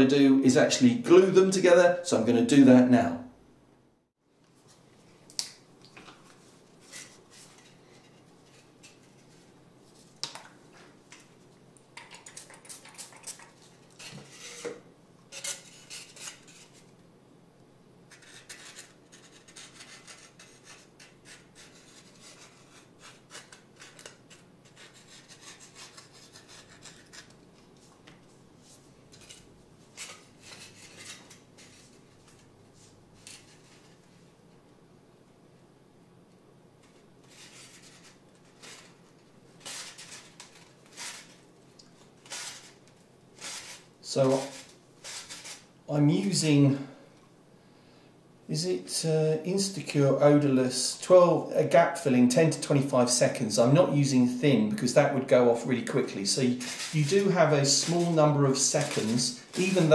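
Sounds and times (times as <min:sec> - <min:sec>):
rubs and scrapes of handling: 0:06.0 - 0:17.0, 0:18.1 - 0:34.4, 0:36.8 - 0:45.8, 0:55.2 - 0:59.9.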